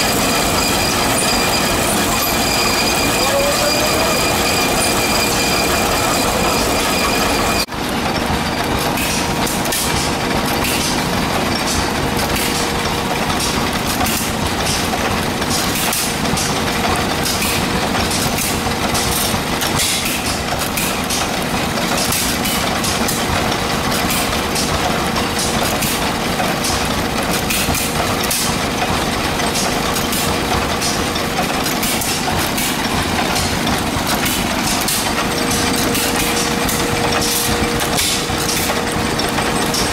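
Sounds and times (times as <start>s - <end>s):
threshing machine whine: 0.0s - 8.9s, 28.9s - 39.9s
stationary engines clattering: 0.0s - 39.9s.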